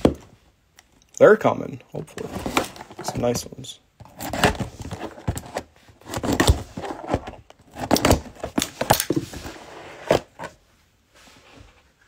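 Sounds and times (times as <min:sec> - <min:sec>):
cardboard box rustling: 0:02.0 - 0:03.4, 0:04.0 - 0:10.6.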